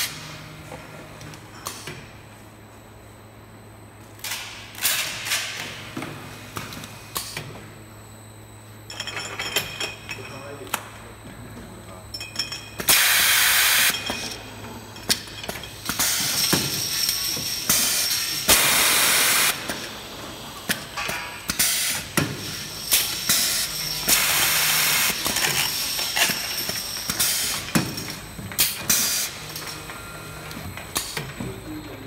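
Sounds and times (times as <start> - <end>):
glass bottles clinking: 12.1 - 12.8
loud hisses of released air: 12.9 - 13.9.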